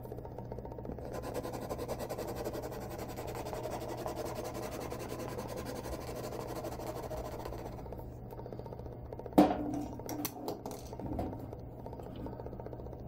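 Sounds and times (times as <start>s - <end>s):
low steady hum: 0.0s - 13.0s
marker scribbling on plastic: 1.0s - 7.8s.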